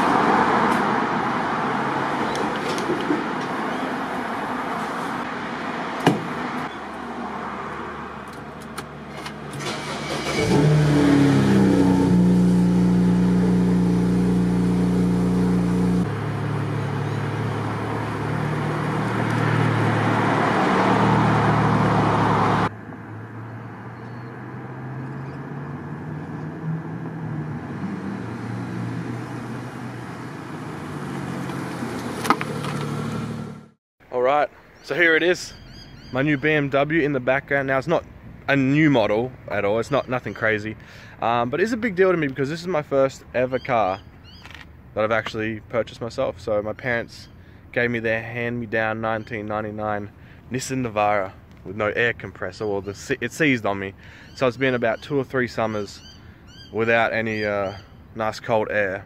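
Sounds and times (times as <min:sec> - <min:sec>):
car engine: 0:00.0 - 0:33.8
road noise: 0:00.0 - 0:59.0.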